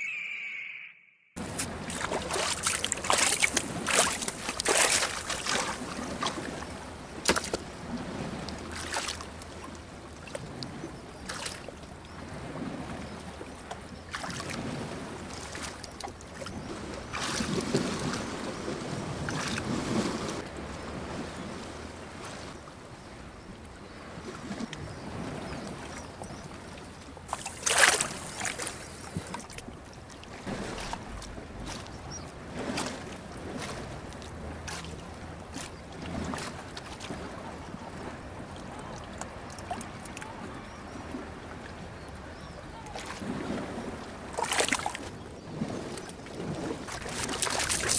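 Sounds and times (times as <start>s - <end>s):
person wading and splashing: 1.4s - 6.4s, 8.7s - 9.3s, 27.3s - 28.7s, 30.4s - 37.3s, 44.4s - 45.1s, 46.4s - 47.9s
water lapping among rocks: 1.4s - 22.6s, 24.0s - 47.9s.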